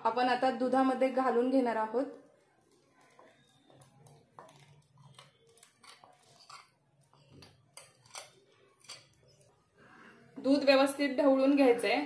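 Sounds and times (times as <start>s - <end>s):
spoon clicking and scraping bowl: 2.6s - 9.6s.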